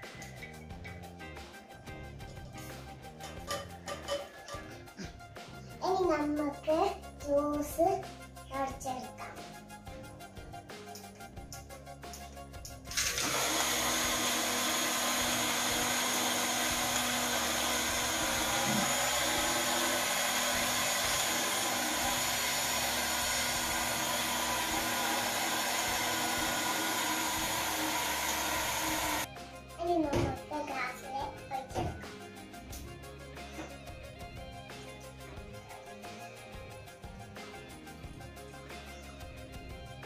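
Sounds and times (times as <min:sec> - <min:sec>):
bottle blender running: 0:12.9 - 0:29.3.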